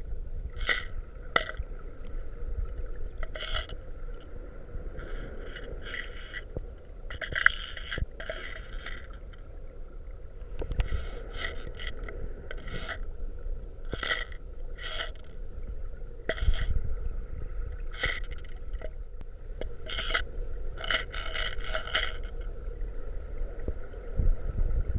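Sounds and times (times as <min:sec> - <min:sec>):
low underwater rumble: 0:00.0 - 0:24.9
underwater rattling bursts: 0:00.6 - 0:01.6, 0:03.2 - 0:03.8, 0:05.0 - 0:09.4, 0:10.6 - 0:13.0, 0:13.9 - 0:15.3, 0:16.3 - 0:16.7, 0:17.9 - 0:19.0, 0:20.8 - 0:22.4.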